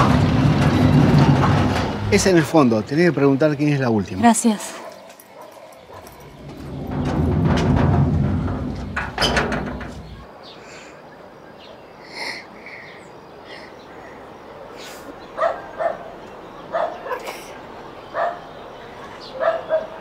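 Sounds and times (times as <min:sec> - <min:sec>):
low rumble with knocks: 0:00.0 - 0:02.6, 0:06.1 - 0:10.3
quiet outdoor ambience: 0:00.0 - 0:20.0
dog barking: 0:04.7 - 0:06.2, 0:15.4 - 0:16.1, 0:16.7 - 0:17.2, 0:18.1 - 0:18.5, 0:19.3 - 0:20.0.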